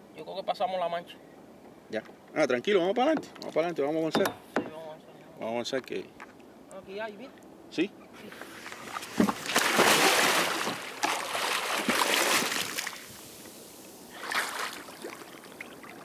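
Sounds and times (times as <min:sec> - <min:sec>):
kayak paddle splashing water: 0:08.4 - 0:16.0.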